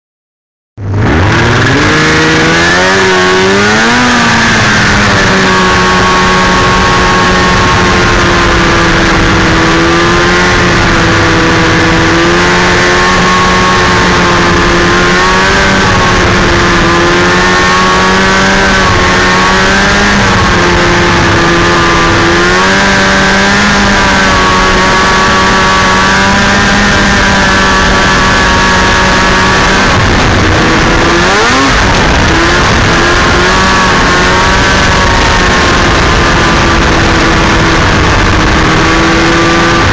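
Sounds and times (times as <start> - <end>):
snowmobile engine running: 0.8 - 39.9.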